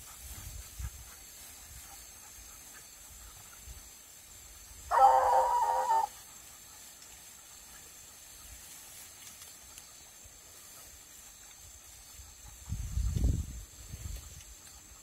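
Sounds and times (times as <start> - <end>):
faint open-air hiss: 0.0 - 15.0
hound baying: 4.9 - 6.6.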